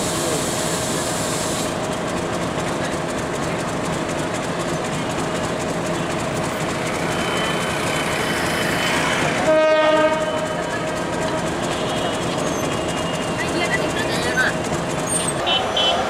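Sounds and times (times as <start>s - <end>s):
diesel locomotive engine rumble: 0.0s - 16.0s
wheel and rail noise: 0.0s - 16.0s
locomotive horn: 9.2s - 13.4s, 15.2s - 16.0s.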